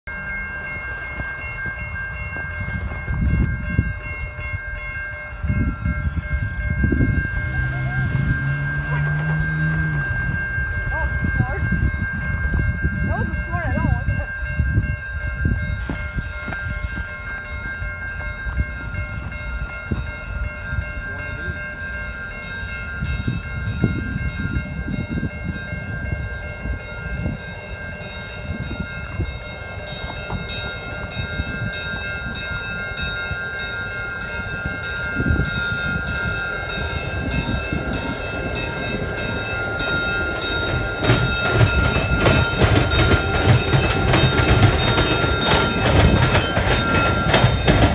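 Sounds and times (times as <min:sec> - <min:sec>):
diesel locomotive engines rumbling: 0:00.0 - 0:47.9
wheels clattering over rails: 0:37.0 - 0:47.9.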